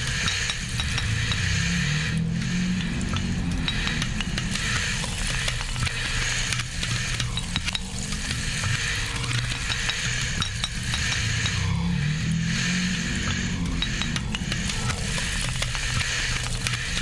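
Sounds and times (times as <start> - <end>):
crackling texture of small clicks: 2.2 - 11.6, 13.2 - 17.0.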